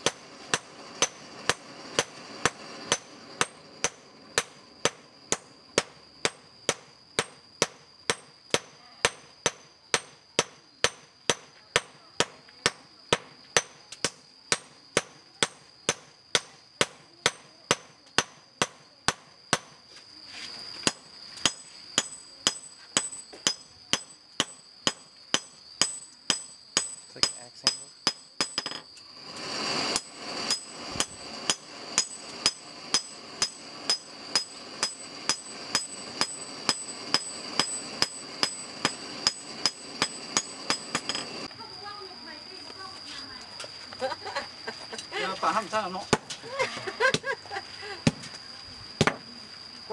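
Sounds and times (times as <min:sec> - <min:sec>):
hammer striking steel on anvil: 0:00.0 - 0:19.8, 0:20.8 - 0:28.8, 0:30.0 - 0:41.5.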